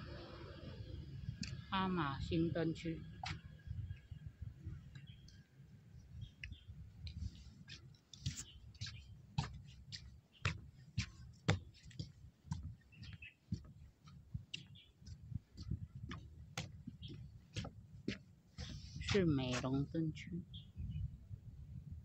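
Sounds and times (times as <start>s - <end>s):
low rumble: 0.0s - 4.9s.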